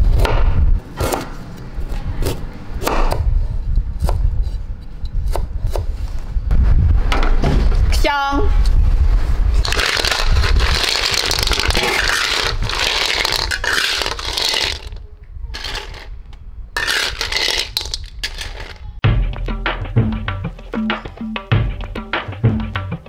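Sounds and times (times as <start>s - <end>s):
shells clattering in metal wok: 9.7s - 15.0s, 16.8s - 18.8s.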